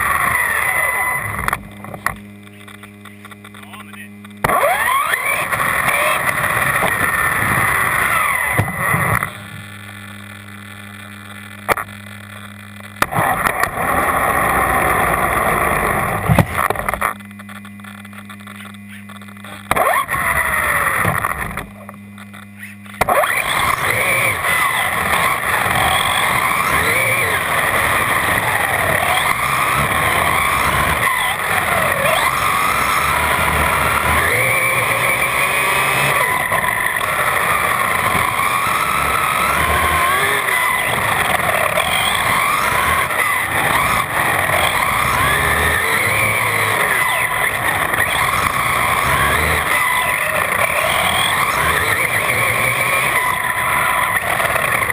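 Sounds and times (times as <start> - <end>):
electric motor whine: 0.0 - 54.9
tyre noise: 23.0 - 54.9.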